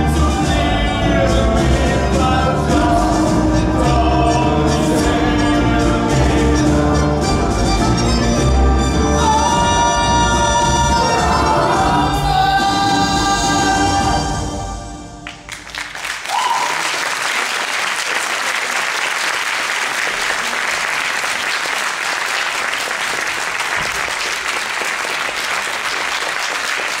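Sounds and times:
tango music: 0.0s - 15.6s
audience applauding: 15.2s - 27.0s.

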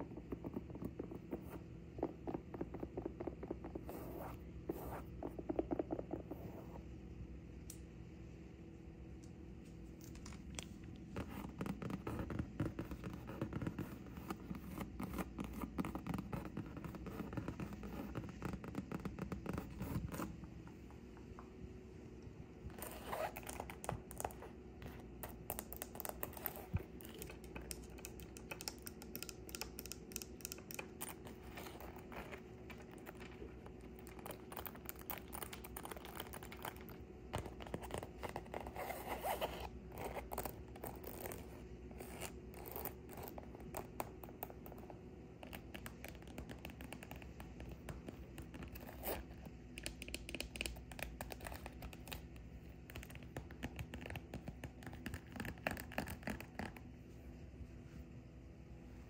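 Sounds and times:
fingernails scratching fabric bag: 22.7s - 27.4s, 30.5s - 43.4s.

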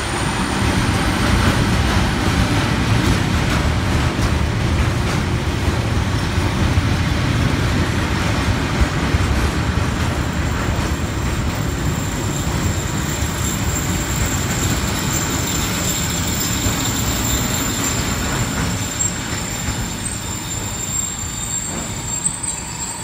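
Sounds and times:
high-pitched squeal: 0.0s - 2.2s, 11.3s - 23.0s
train wheels rumbling on rails: 0.0s - 23.0s.

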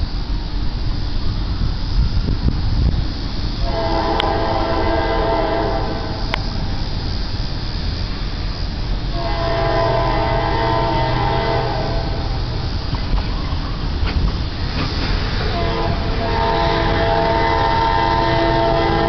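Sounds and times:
locomotive air horn blasts: 3.6s - 6.6s, 9.1s - 12.6s, 15.4s - 19.0s.

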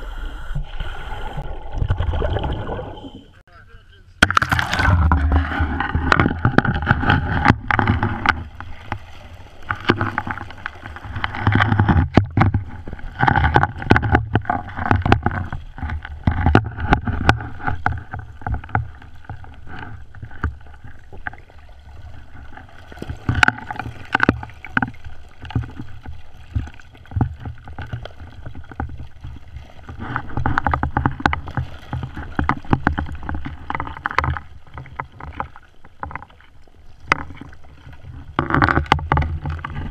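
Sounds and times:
diver regulator bubbles: 0.0s - 3.4s, 4.3s - 39.9s
muffled water sloshing and bubbling: 0.0s - 3.4s, 4.2s - 39.9s
sharp clicks and knocks: 4.2s - 9.0s, 9.7s - 21.4s, 23.0s - 28.1s, 29.9s - 36.4s, 38.3s - 39.9s.

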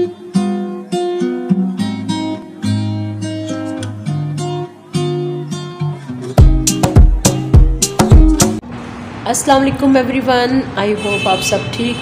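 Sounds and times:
acoustic guitar tune: 0.0s - 8.6s.

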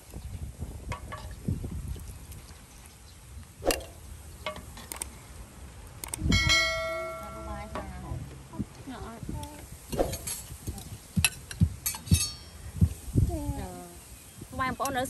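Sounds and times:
bright ringing chime: 6.3s - 7.8s.

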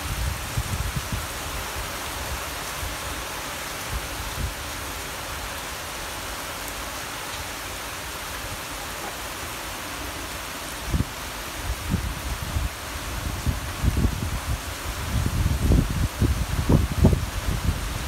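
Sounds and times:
heavy rain pouring: 0.0s - 18.0s
wind thumps on microphone: 11.8s - 18.0s.

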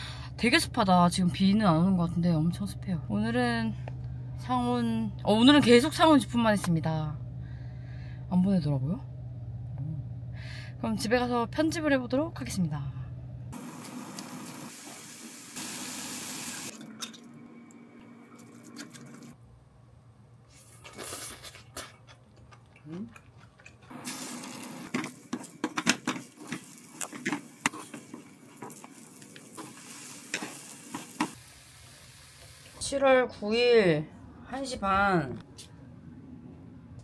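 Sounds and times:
water running from tap: 13.6s - 16.8s, 24.0s - 24.9s, 26.5s - 32.8s.

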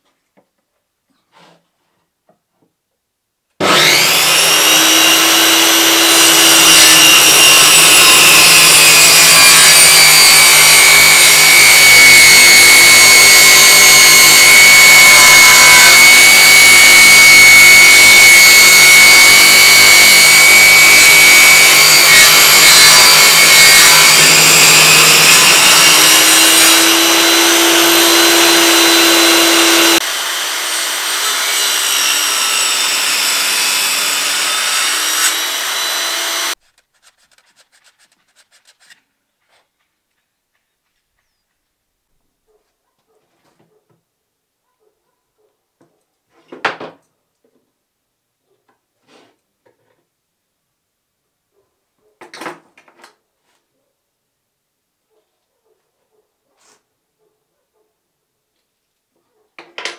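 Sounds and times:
table saw ripping wood: 3.6s - 39.0s.

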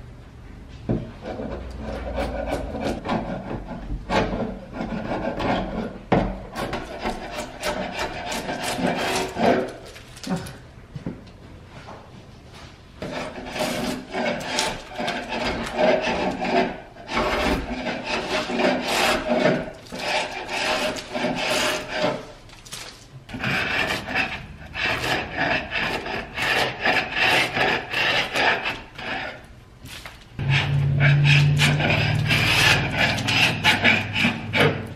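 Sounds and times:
chisel scraping paint off wood: 1.2s - 9.9s, 13.0s - 22.3s, 23.3s - 29.4s, 30.4s - 34.9s.

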